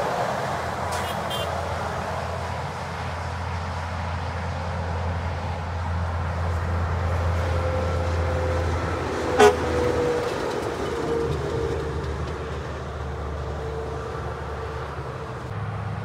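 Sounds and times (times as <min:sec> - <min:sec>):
heavy truck traffic droning: 0:00.0 - 0:16.0
truck air horn toot: 0:00.9 - 0:01.6, 0:09.3 - 0:10.2.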